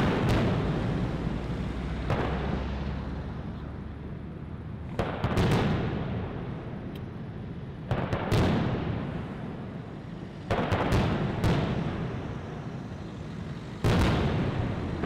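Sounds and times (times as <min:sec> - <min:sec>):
firework shells booming: 0:00.0 - 0:01.3, 0:02.0 - 0:02.8, 0:04.9 - 0:06.4, 0:10.5 - 0:12.8, 0:13.8 - 0:15.0.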